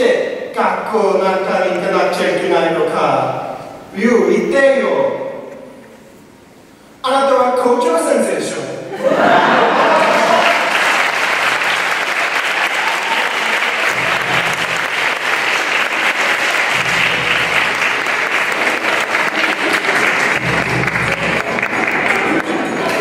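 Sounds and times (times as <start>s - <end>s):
audience applauding: 9.6s - 23.0s.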